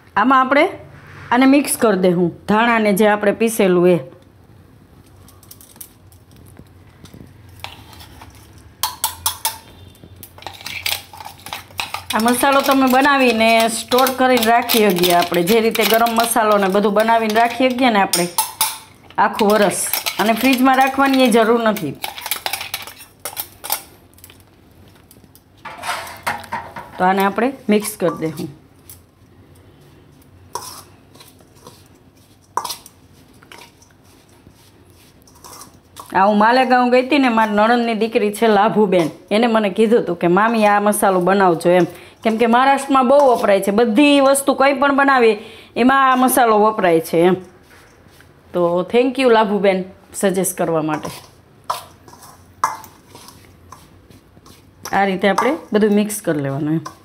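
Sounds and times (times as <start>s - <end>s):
spoon stirring in metal bowl: 5.3s - 39.2s, 40.3s - 44.2s, 50.6s - 57.0s
steel spoon clinking on steel: 10.3s - 23.8s
spice powder scraped from jar: 30.5s - 32.9s, 33.5s - 35.8s.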